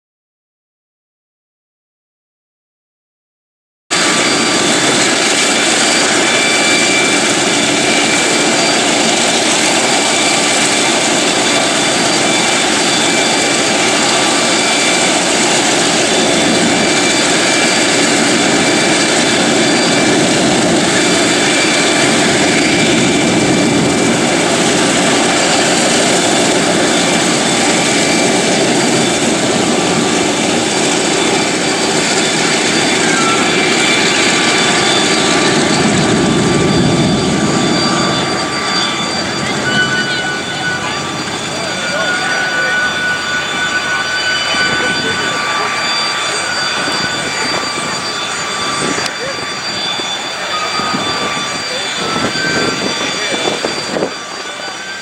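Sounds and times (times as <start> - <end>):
radial piston engines running: 4.0 - 55.0.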